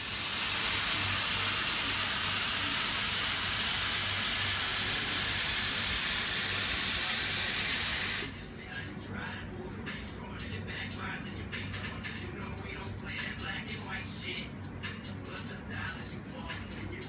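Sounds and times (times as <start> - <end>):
spray gun hissing: 0.0 - 8.3.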